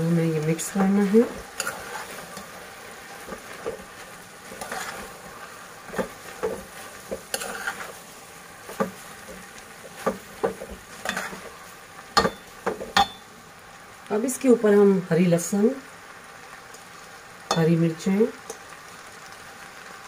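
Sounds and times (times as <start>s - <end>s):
low sizzle: 0.0s - 20.0s
metal spoon scraping a pot: 1.4s - 2.5s, 4.5s - 8.0s, 10.0s - 11.5s.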